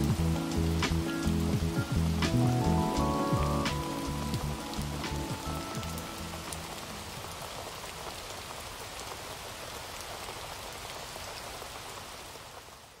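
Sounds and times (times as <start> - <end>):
raindrop ticks: 0.0 - 9.2
rain hiss: 0.0 - 13.0.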